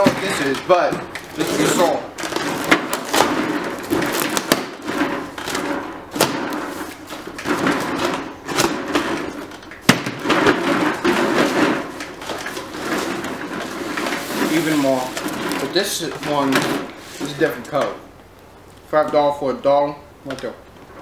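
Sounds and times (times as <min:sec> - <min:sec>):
cardboard flaps scraping and rustling: 0:00.0 - 0:17.9
sharp knocks: 0:02.2 - 0:13.4.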